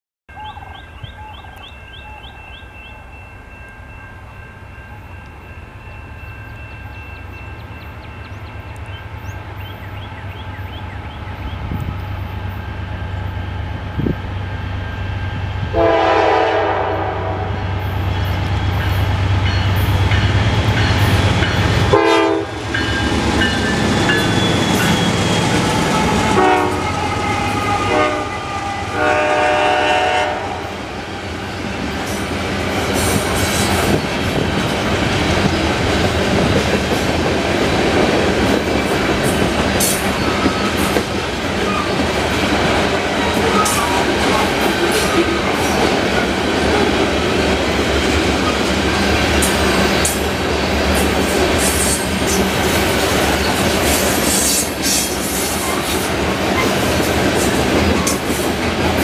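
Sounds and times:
diesel locomotive engines rumbling: 0.3 - 59.0
train wheels on rails: 0.3 - 59.0
locomotive air horn blasts: 15.6 - 17.8, 21.9 - 22.7, 25.8 - 30.8.

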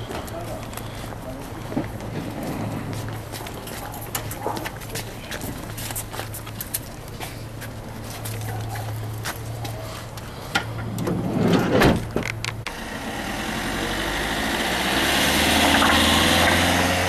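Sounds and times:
van driving past: 8.9 - 17.0
sliding van door shutting: 10.8 - 12.4.

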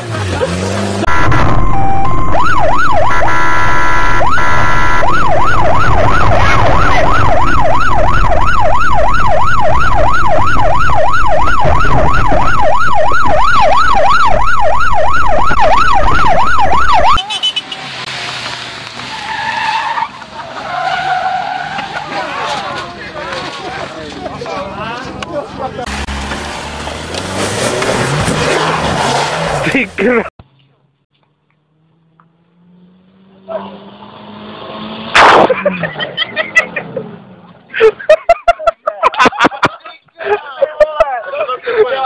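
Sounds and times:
car engine: 0.0 - 37.7
road noise: 0.0 - 42.0
electronic siren yelping: 1.1 - 17.3.

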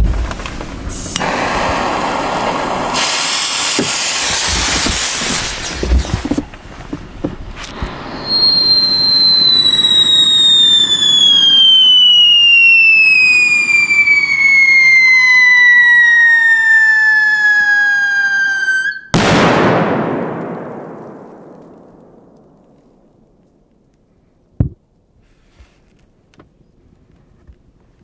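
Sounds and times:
fuse hissing: 0.9 - 6.2
firecracker bang: 0.9 - 6.5, 7.6 - 16.9, 19.1 - 23.4
firework whistle falling in pitch: 7.7 - 19.2.

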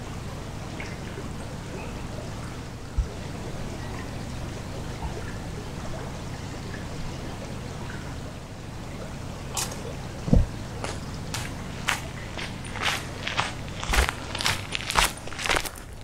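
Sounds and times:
river water flowing: 0.0 - 16.0
footsteps: 9.6 - 16.0.

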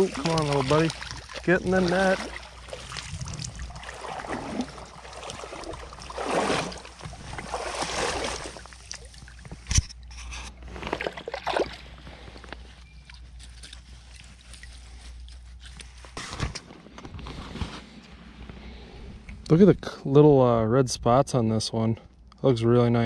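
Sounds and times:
stream trickling: 0.0 - 15.8
water sloshing and splashing: 0.0 - 16.2.

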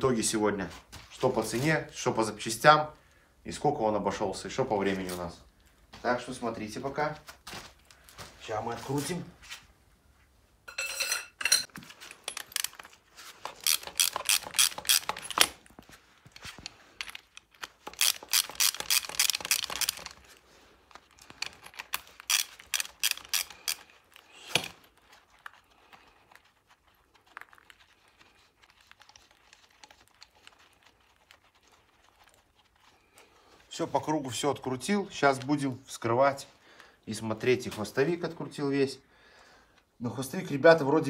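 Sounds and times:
faint metal clinks: 10.7 - 12.6
ratchet wrench clicking: 13.6 - 15.5, 17.6 - 20.1, 22.2 - 23.8.

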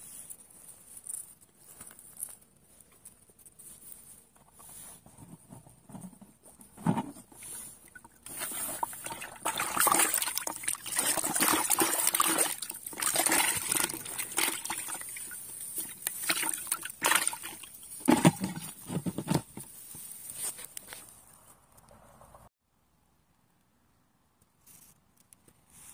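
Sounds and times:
fish splashing in a bucket: 7.4 - 18.8.

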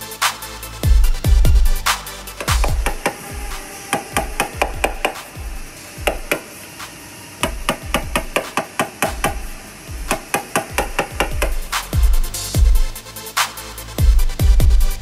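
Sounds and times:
hammer tapping sheet metal: 2.4 - 12.2.

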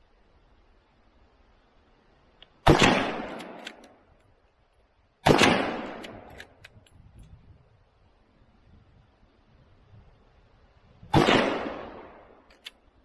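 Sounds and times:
rifle shots: 2.6 - 3.8, 5.2 - 6.4, 11.1 - 12.3
rifle lever clicks: 3.3 - 4.3, 5.8 - 7.4, 12.4 - 12.8.

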